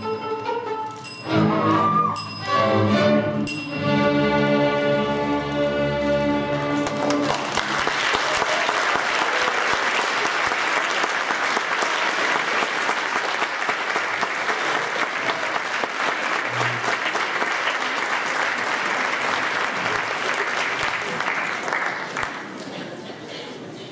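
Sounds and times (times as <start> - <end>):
string orchestra chord: 2.4 - 7.2
audience applause: 6.5 - 23.0.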